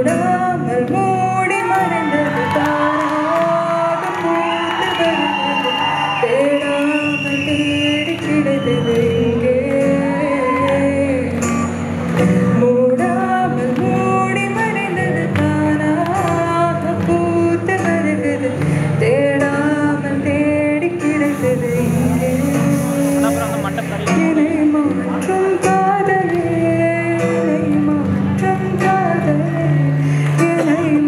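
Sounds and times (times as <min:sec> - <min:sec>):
woman singing into microphone: 0:00.0 - 0:31.0
strummed acoustic guitar: 0:20.2 - 0:31.0.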